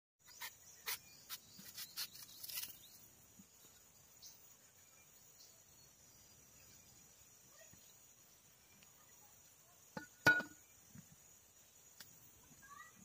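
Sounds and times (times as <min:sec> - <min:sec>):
crickets chirring: 0:00.2 - 0:13.0.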